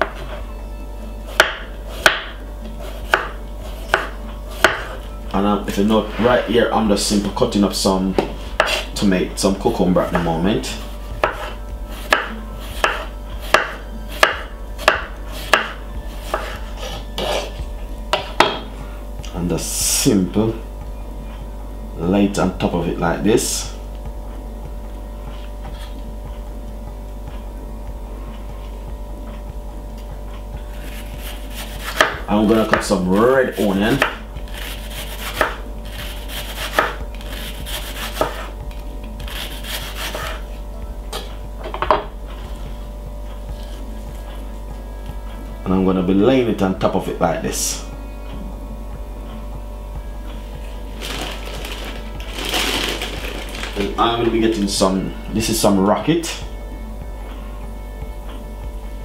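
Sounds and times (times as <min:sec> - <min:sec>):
knife slicing cucumber on board: 0:01.3 - 0:05.0, 0:08.2 - 0:08.9, 0:10.1 - 0:18.6, 0:30.8 - 0:32.9, 0:34.0 - 0:38.5, 0:39.2 - 0:40.5.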